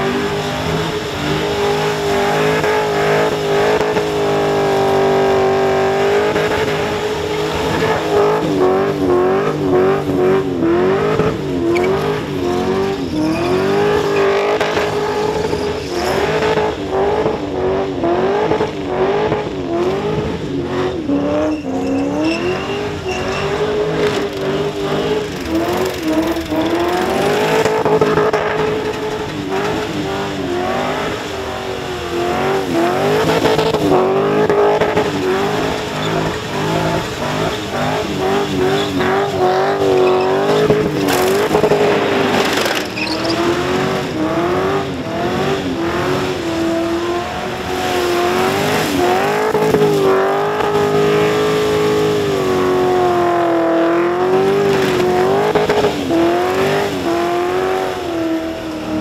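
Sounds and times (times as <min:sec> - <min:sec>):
car engine revving high: 0:00.0 - 0:59.0
tyres squealing: 0:11.6 - 0:16.5, 0:21.0 - 0:44.2.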